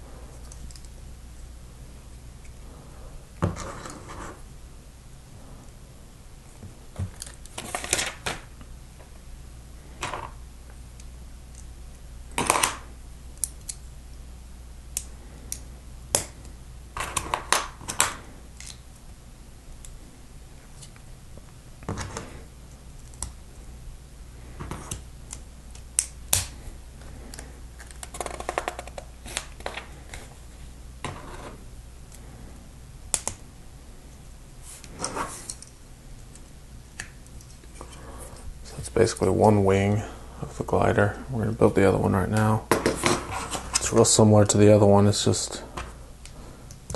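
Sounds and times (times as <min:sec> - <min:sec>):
low steady hum: 0:00.0 - 0:46.9.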